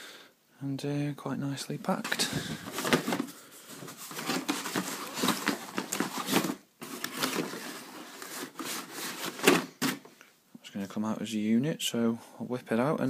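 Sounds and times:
cardboard packaging rustling: 0:01.9 - 0:10.1.

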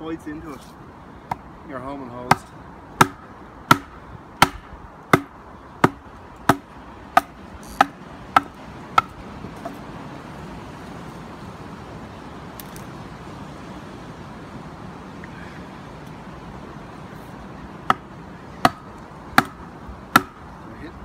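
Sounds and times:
background hiss: 0:00.0 - 0:21.0.

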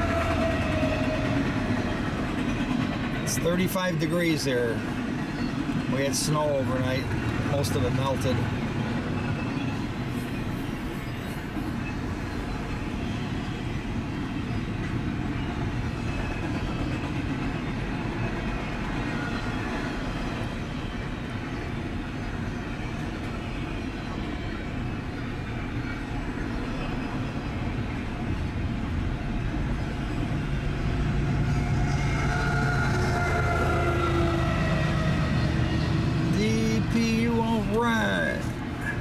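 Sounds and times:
train wheels rolling on rails: 0:00.0 - 0:39.0.

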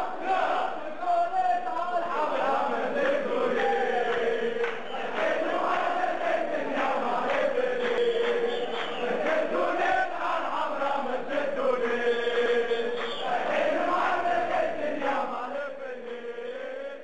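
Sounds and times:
crowd chanting in unison: 0:00.0 - 0:17.0.

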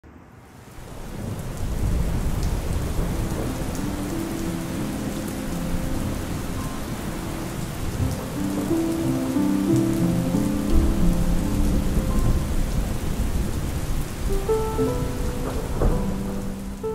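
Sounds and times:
steady rain falling: 0:00.4 - 0:16.9
soft music low notes: 0:03.0 - 0:16.9.

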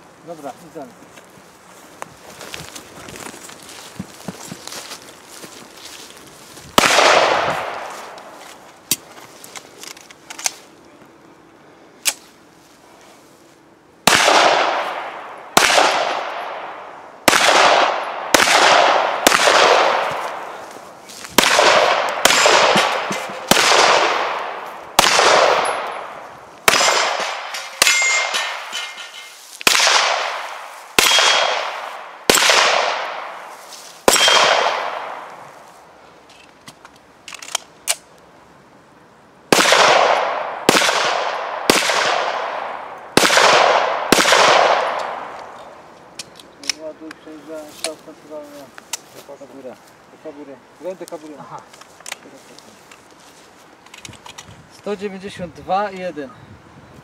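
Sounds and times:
pistol shots: 0:06.8 - 0:08.2, 0:14.0 - 0:20.6, 0:21.4 - 0:28.7, 0:29.6 - 0:33.4, 0:34.0 - 0:35.3, 0:39.5 - 0:45.3
steel targets clanging: 0:26.7 - 0:29.4.

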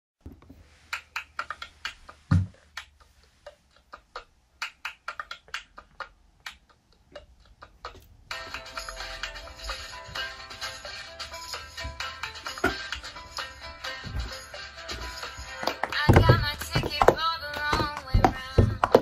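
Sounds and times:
singing with music: 0:08.3 - 0:19.0
hand claps: 0:15.3 - 0:19.0.

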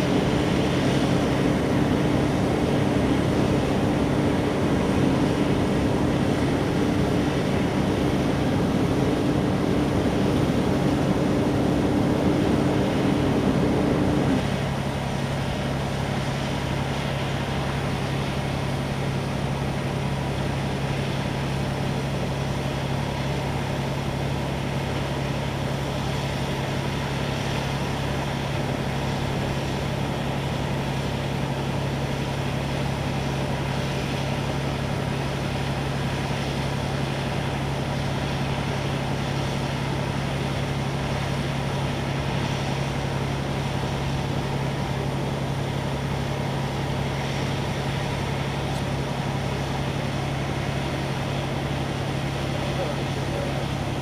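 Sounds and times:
pump engines droning: 0:00.0 - 0:54.0
water streams spraying: 0:00.0 - 0:54.0.

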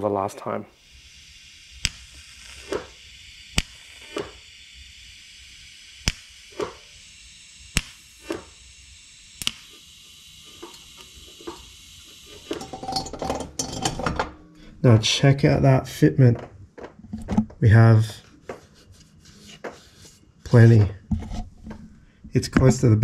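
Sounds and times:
welding bursts: 0:00.7 - 0:14.3
welder sharp cracks: 0:00.7 - 0:14.4
small knocks and clatter: 0:16.3 - 0:17.6.

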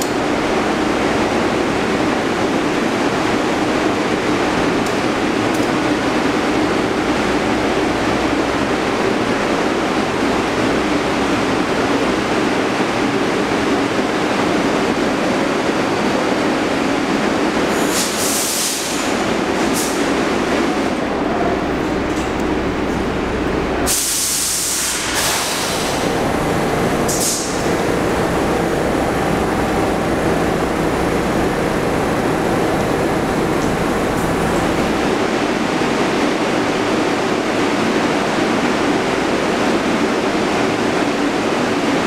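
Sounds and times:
subway train equipment drone: 0:00.0 - 0:42.0
air hissing: 0:17.7 - 0:19.2, 0:23.8 - 0:30.6.

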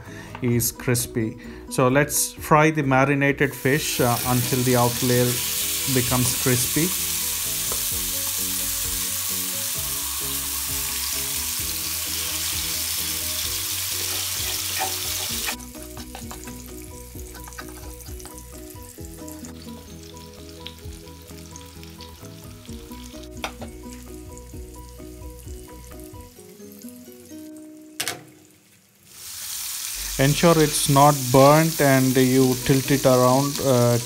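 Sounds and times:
fish sizzling in hot oil: 0:03.6 - 0:34.0
oil spitting and crackling: 0:13.8 - 0:20.8.

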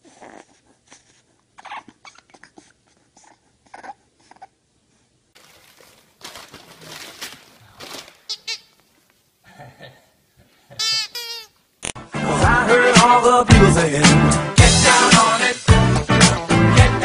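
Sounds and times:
puppy whimpering and grunting: 0:00.0 - 0:04.6
scuffling noise: 0:05.4 - 0:09.2.

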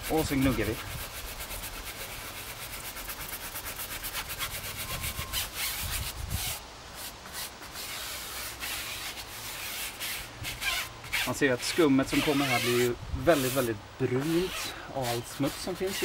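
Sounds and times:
brush scrubbing a tyre: 0:00.0 - 0:16.0.

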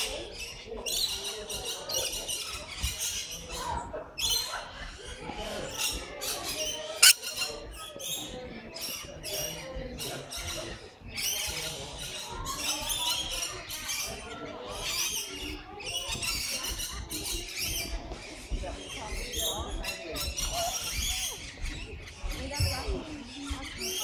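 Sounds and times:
lorikeets chattering: 0:06.5 - 0:09.6.

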